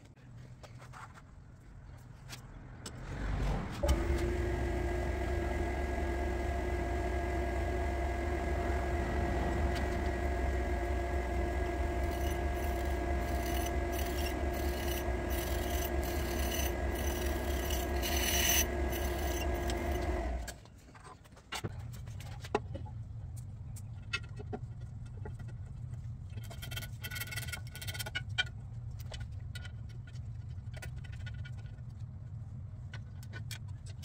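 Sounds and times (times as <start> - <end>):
grinder motor humming and whining: 3.8 - 20.6
grinding wheel hissing scrapes: 5.5 - 20.5.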